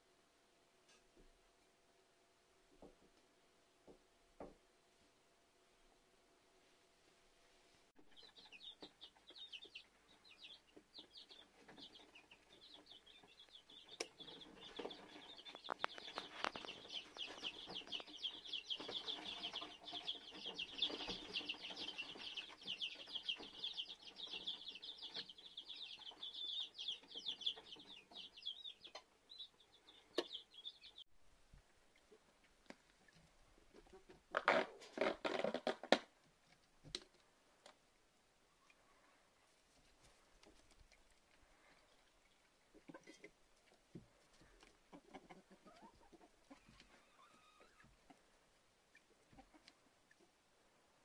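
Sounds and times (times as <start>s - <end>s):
chicks peeping: 8.0s - 35.7s, 38.6s - 51.0s.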